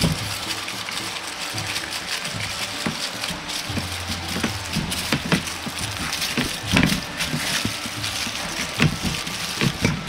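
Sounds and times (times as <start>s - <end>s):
aluminium foil crinkling: 0.0s - 10.0s.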